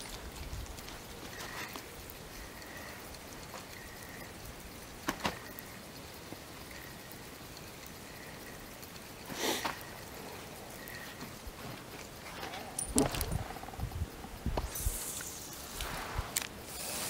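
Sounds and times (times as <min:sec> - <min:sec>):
water lapping and dripping: 0:00.0 - 0:13.7.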